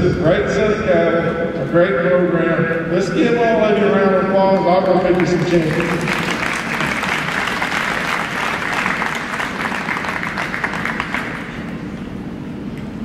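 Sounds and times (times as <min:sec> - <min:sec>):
crowd applauding: 0:04.8 - 0:11.8.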